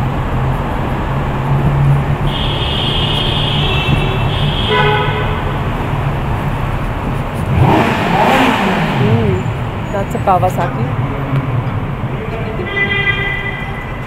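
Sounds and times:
traffic and tyre rumble: 0.0s - 14.0s
vehicle horns honking: 2.2s - 5.8s, 12.2s - 14.0s.

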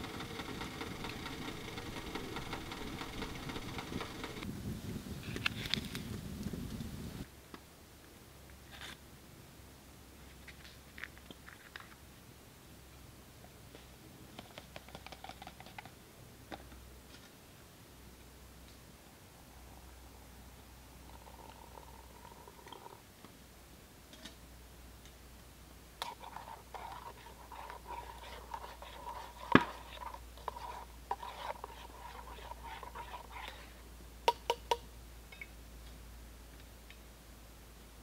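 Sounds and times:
gear clicks taps and rustles: 0.0s - 4.4s.

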